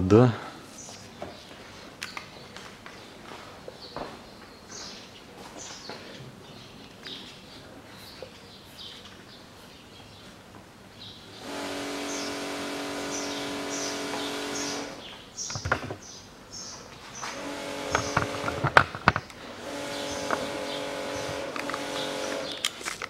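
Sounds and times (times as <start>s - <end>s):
small birds chirping: 0.1s - 22.8s
motor hum: 11.4s - 16.0s, 17.2s - 22.7s
sharp knocks: 15.4s - 16.1s.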